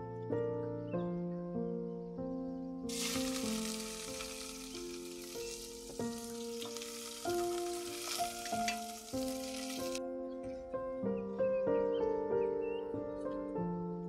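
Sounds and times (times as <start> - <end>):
soft instrumental music: 0.0 - 14.0
pot of water boiling: 2.9 - 10.0.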